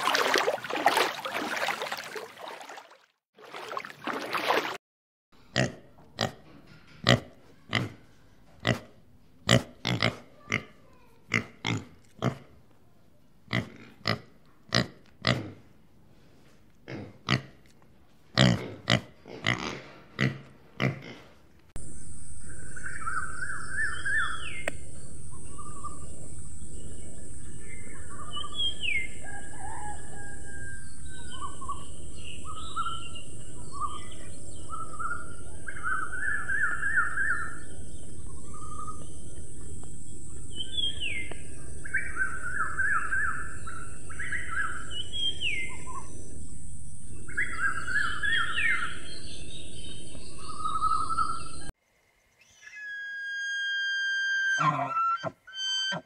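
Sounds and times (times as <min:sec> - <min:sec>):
pigs grunting: 0:05.5 - 0:08.0, 0:08.6 - 0:12.5, 0:13.5 - 0:15.7, 0:16.8 - 0:17.6, 0:18.4 - 0:21.3
steady outdoor hiss: 0:20.0 - 0:52.9
birds chirping: 0:21.8 - 0:51.7.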